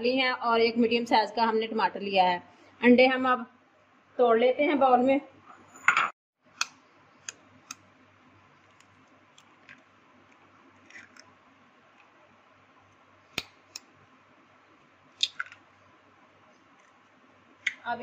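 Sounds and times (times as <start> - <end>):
shell crackling: 15.2 - 15.6.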